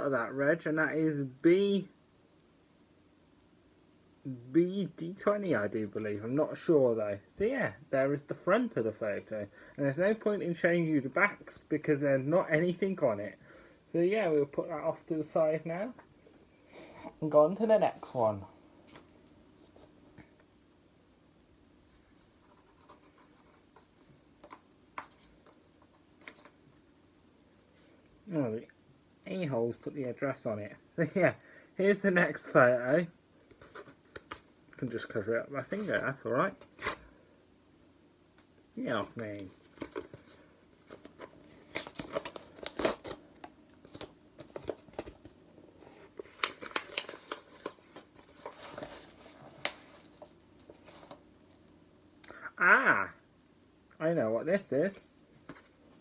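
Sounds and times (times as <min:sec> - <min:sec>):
paper package rustling: 0:39.0 - 0:51.2.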